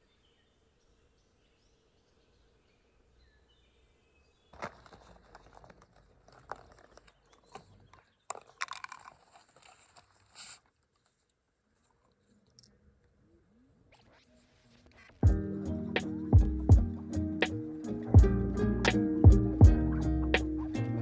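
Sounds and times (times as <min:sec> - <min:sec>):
clicks taps and crunches: 0:04.5 - 0:12.8.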